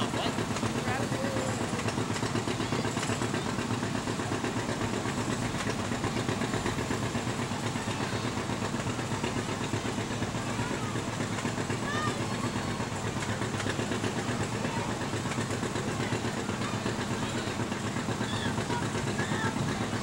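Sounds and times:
vehicle engine idling: 0:00.0 - 0:20.0.

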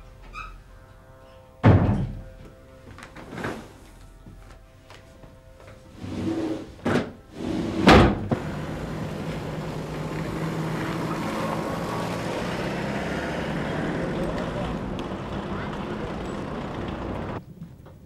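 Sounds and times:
street traffic noise: 0:05.9 - 0:17.9
low engine hum: 0:08.1 - 0:17.4.

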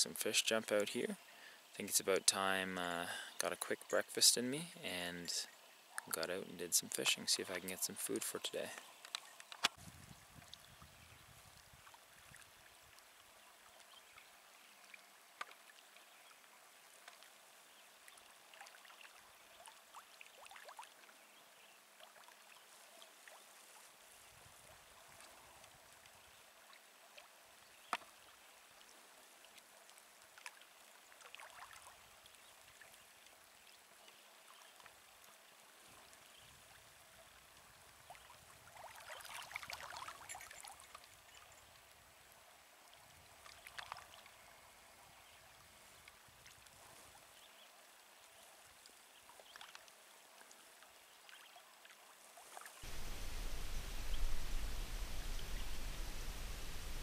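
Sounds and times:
water lapping and splashing: 0:17.0 - 0:21.1, 0:28.8 - 0:33.0, 0:37.6 - 0:41.5, 0:43.0 - 0:44.4.

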